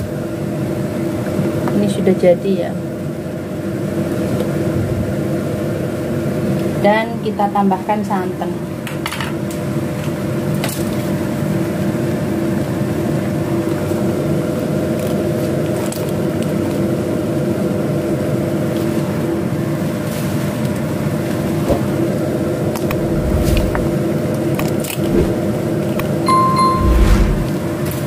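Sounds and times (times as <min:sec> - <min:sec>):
mechanical hum: 0:20.8 - 0:27.6
low bump: 0:26.3 - 0:27.6.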